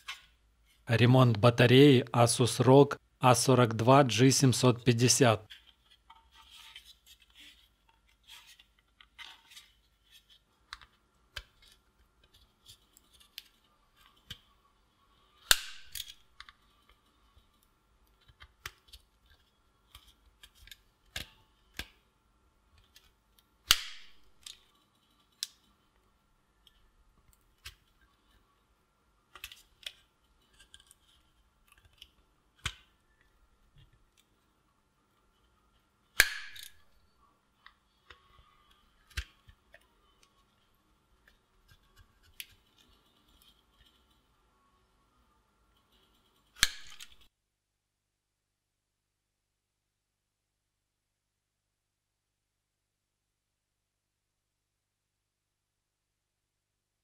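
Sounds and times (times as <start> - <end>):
plastic snapping: 22.8 - 24.6, 31.7 - 32.9, 36.2 - 36.8, 39.0 - 39.9, 46.6 - 47.3.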